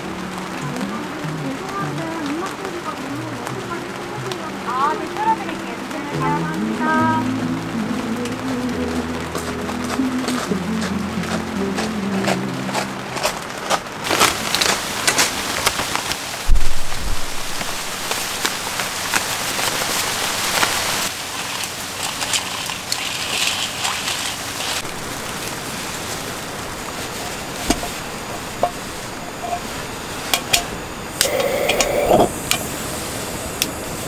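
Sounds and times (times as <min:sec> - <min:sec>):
rain on a tent: 0:00.0 - 0:34.0
clams clicking in water: 0:21.1 - 0:24.8.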